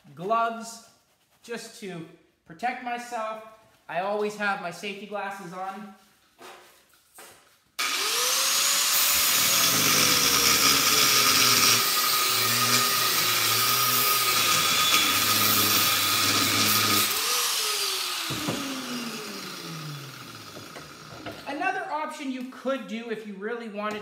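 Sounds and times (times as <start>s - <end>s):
grinder winding down whine: 7.8s - 21.4s
angle grinder grinding steel: 7.8s - 21.5s.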